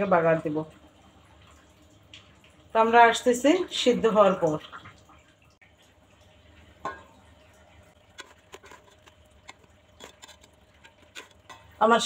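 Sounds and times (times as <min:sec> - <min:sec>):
spatula scraping cooking pot: 0:08.0 - 0:11.8.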